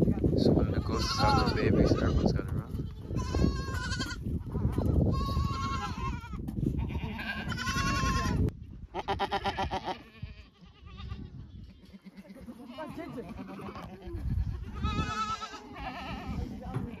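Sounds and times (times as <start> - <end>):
goats bleating: 0.7 - 17.0.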